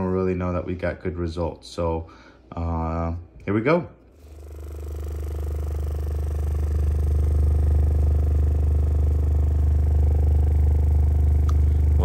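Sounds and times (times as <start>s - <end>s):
subwoofer deep buzzing hum: 4.1s - 12.0s.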